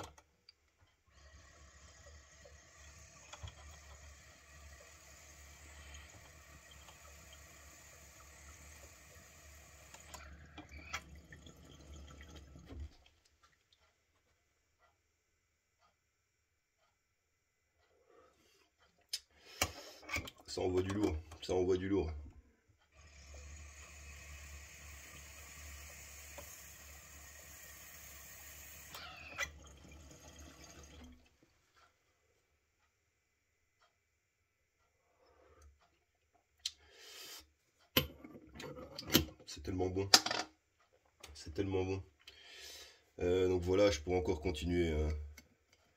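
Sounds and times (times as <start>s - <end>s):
water pipe bubbling: 1.1s - 13.8s, 23.0s - 31.4s.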